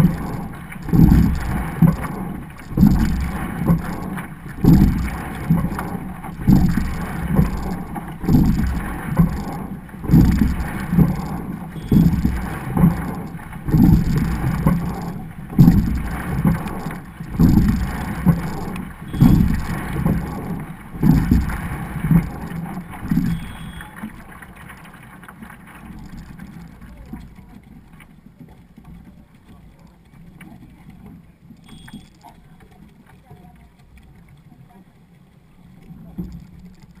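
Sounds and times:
wind on microphone: 0:00.0 - 0:23.6
rowing stroke surge: 0:00.0 - 0:28.6
water rushing past a boat hull: 0:00.0 - 0:37.0.

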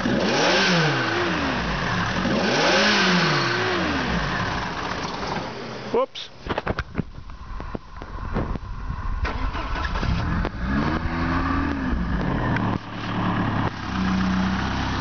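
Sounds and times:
engine revving: 0:00.0 - 0:05.4, 0:09.2 - 0:15.0
car engine starting and idling: 0:00.0 - 0:15.0.

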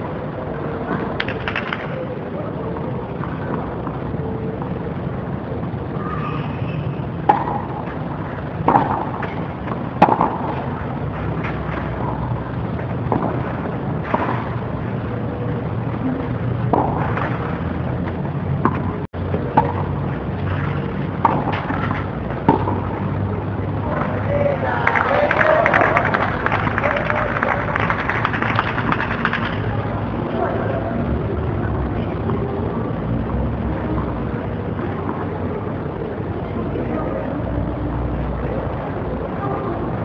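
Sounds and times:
steady background hum: 0:00.0 - 0:40.0
tennis rackets striking ball: 0:07.2 - 0:12.4, 0:13.0 - 0:14.7, 0:16.6 - 0:23.2.

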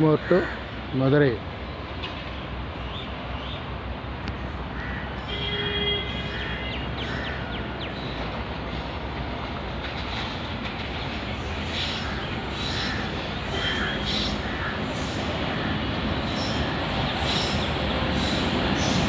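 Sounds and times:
train rumble: 0:00.0 - 0:19.0.

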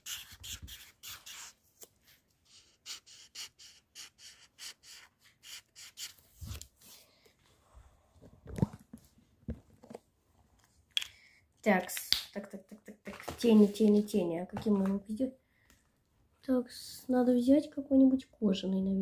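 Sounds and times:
felt-tip marker scrubbing on paper: 0:00.0 - 0:01.6, 0:02.5 - 0:06.6.

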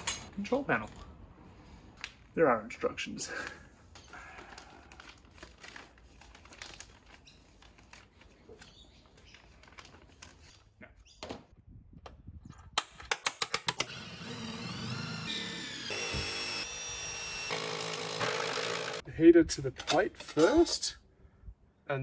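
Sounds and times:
packaging rustling: 0:04.3 - 0:10.6
sharp clicks of parts: 0:12.8 - 0:14.0.

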